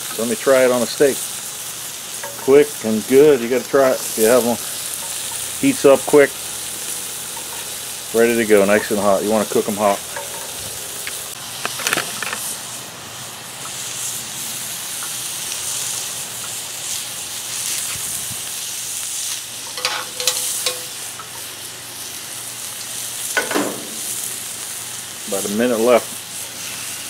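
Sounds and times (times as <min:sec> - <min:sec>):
steak sizzling on griddle: 0:00.0 - 0:27.0
sharp crackles: 0:14.9 - 0:27.0.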